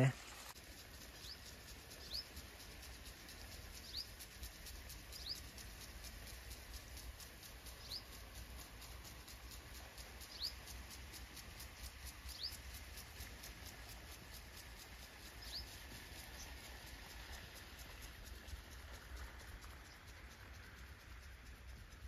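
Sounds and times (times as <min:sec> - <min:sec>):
bird chirping: 0:01.2 - 0:02.4, 0:03.7 - 0:05.6, 0:07.6 - 0:08.2, 0:10.2 - 0:10.6, 0:12.3 - 0:12.8, 0:15.3 - 0:16.6.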